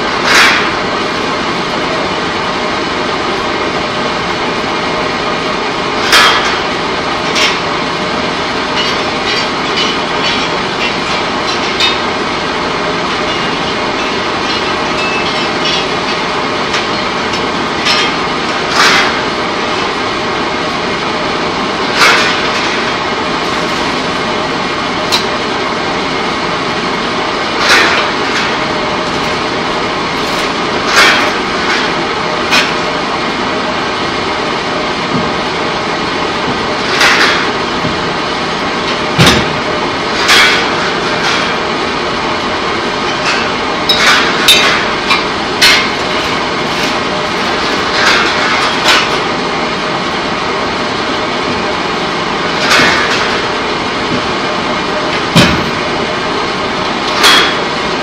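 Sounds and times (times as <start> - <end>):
loud machinery din: 0.0 - 58.0
metal knocks and clangs: 8.7 - 12.2, 13.0 - 20.0, 21.9 - 24.2, 27.6 - 32.8, 38.8 - 41.6, 43.0 - 49.3, 51.5 - 54.3, 55.1 - 55.9, 57.0 - 57.7.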